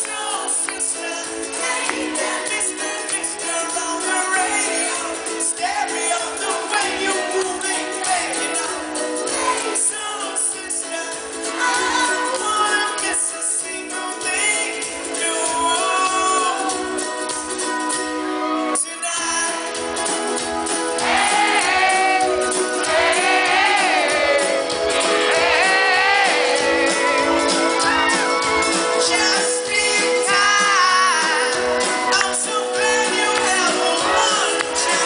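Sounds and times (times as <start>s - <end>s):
man singing: 0.0s - 17.1s, 18.7s - 19.8s, 28.8s - 35.0s
live pop-rock band: 0.0s - 35.0s
strummed ukulele: 0.0s - 35.0s.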